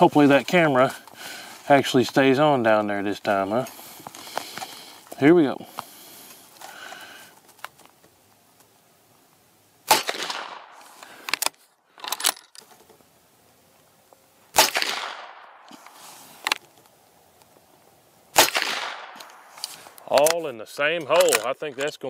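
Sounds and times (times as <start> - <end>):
suppressed rifle shots: 9.9 - 11.4, 14.5 - 15.9, 18.3 - 19.6.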